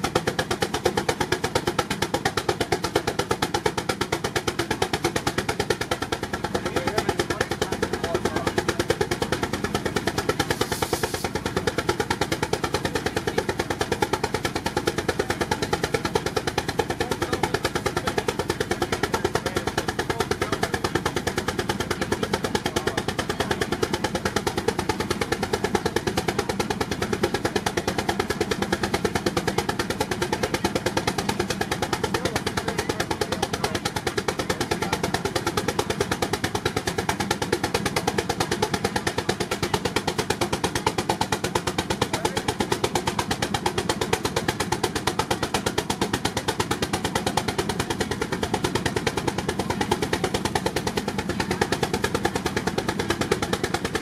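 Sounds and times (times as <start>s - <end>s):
steam engine exhaust chuffing: 0.0s - 54.0s
steam hiss: 10.4s - 12.1s.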